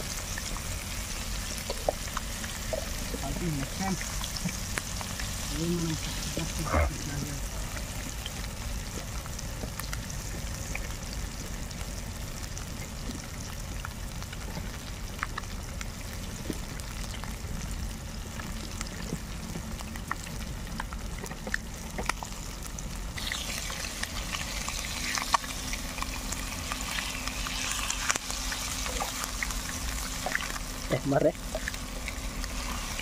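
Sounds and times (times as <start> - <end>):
oil popping: 0.0 - 7.0, 18.3 - 33.0
fish frying in hot oil: 0.0 - 33.0.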